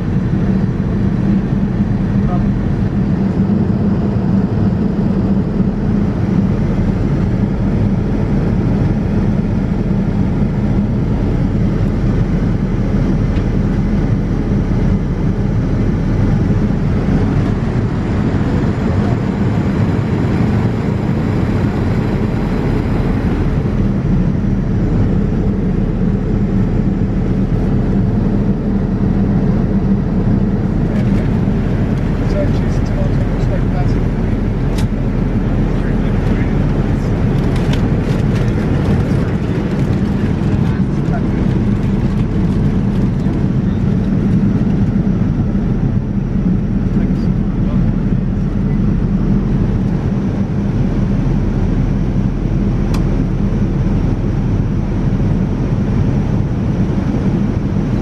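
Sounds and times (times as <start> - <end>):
airplane cabin rush: 29.6 - 45.8.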